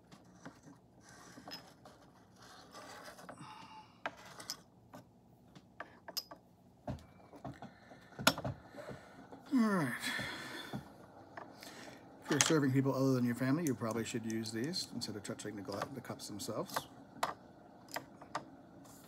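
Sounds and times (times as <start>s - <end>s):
person humming: 9.5s - 10.4s.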